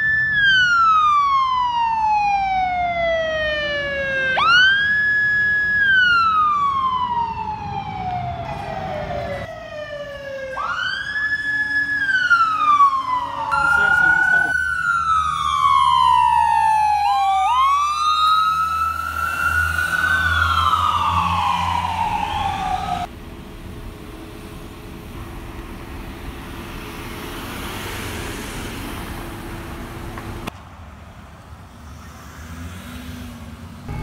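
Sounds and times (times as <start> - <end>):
emergency siren wailing: 0.0 - 23.1
traffic noise: 0.0 - 34.0.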